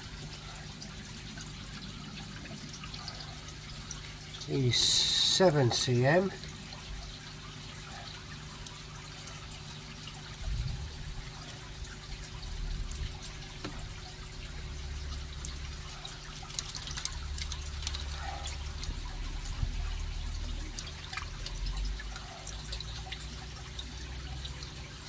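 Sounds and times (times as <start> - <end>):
water trickling and splashing: 0.0 - 25.0
low rumble: 10.4 - 11.0.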